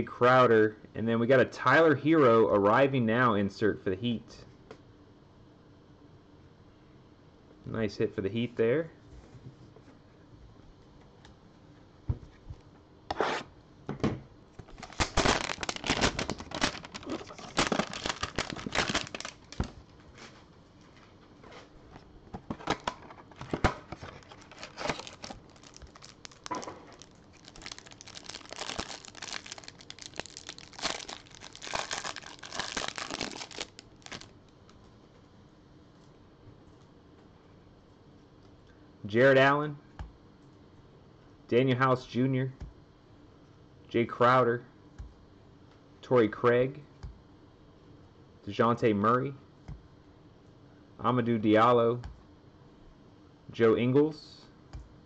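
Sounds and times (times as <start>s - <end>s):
packaging crinkling: 14.6s - 19.9s, 22.7s - 34.6s
cardboard tearing: 14.7s - 19.7s, 24.1s - 34.3s.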